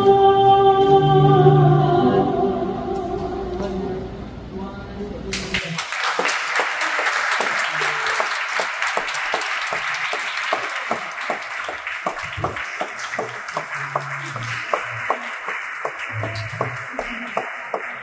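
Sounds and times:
audience applauding: 0:05.5 - 0:18.0.

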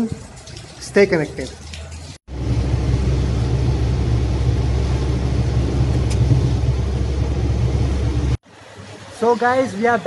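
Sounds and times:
car driving on wet road: 0:02.3 - 0:08.4.

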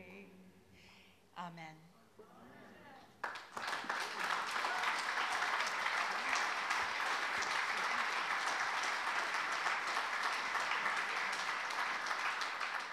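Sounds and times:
audience applauding: 0:03.2 - 0:12.9.

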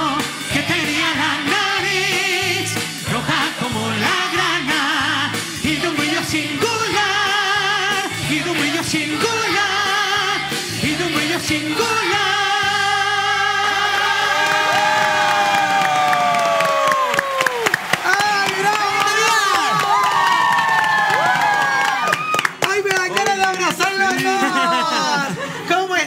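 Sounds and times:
man singing: 0:00.0 - 0:15.2
children's choir singing: 0:00.0 - 0:15.4
backing track: 0:00.0 - 0:17.0.

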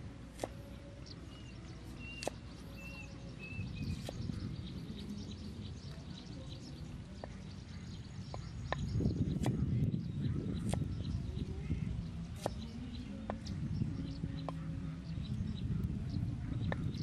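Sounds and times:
low background rumble: 0:00.0 - 0:17.0
cleaver chopping on wooden board: 0:00.3 - 0:00.6, 0:02.1 - 0:02.4, 0:12.4 - 0:12.6
bird chirping: 0:00.4 - 0:17.0.

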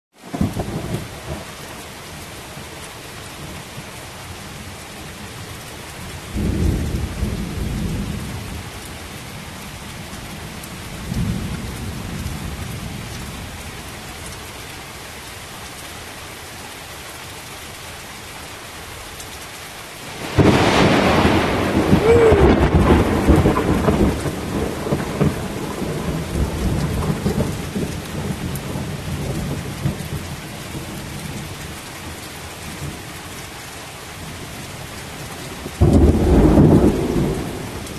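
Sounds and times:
heavy rain: 0:00.1 - 0:37.9
loud thunderclap: 0:20.0 - 0:30.0, 0:35.8 - 0:37.9
thunder rumbling: 0:20.0 - 0:31.0, 0:35.7 - 0:37.9.

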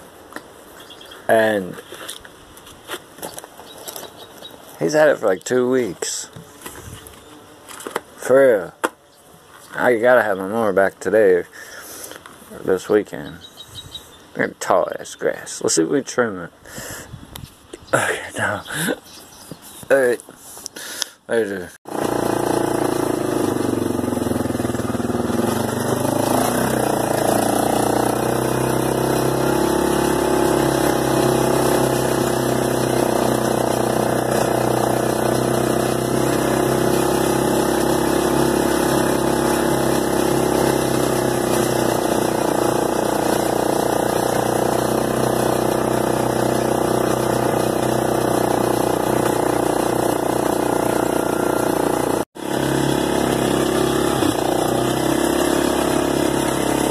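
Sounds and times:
atv engine running: 0:03.2 - 0:10.4, 0:21.9 - 0:56.9.

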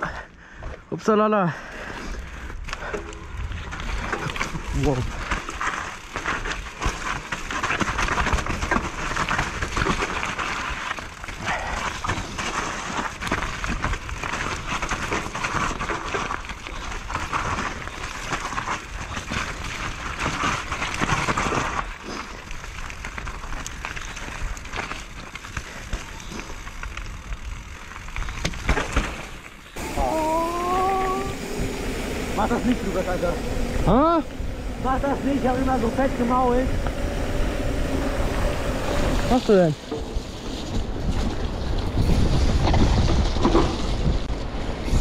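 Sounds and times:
bike rattling and knocking: 0:01.8 - 0:30.4, 0:38.3 - 0:45.0
tyre and air rushing: 0:29.8 - 0:45.0.

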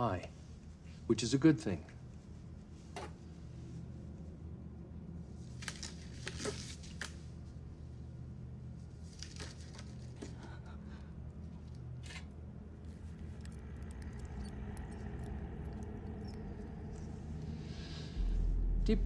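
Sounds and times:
low steady hum: 0:00.0 - 0:19.0
tiny ticks: 0:13.1 - 0:17.5.

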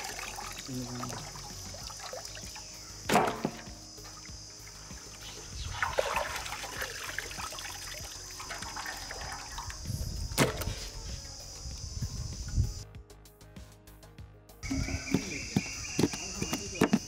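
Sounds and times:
water dribbling and splattering: 0:00.0 - 0:10.7.

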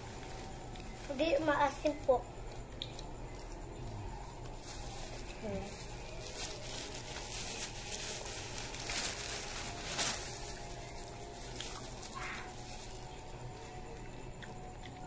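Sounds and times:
plastic bag crinkling: 0:04.5 - 0:13.3.

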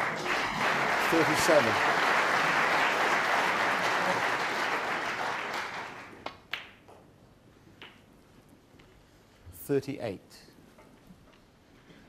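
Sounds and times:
audience applause: 0:00.0 - 0:06.2.

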